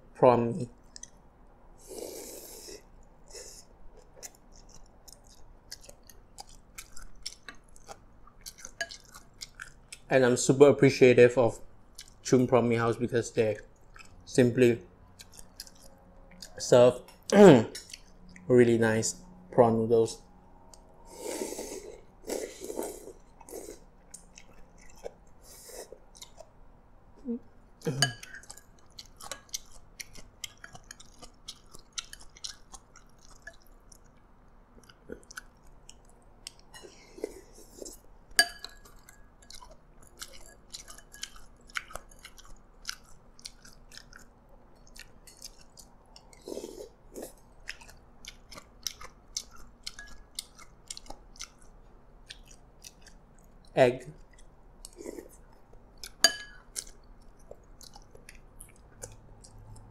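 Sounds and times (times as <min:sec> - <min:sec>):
person chewing and slurping noodles: 0:01.8 - 0:10.1, 0:20.8 - 0:26.6, 0:27.2 - 0:53.6, 0:54.2 - 0:59.9.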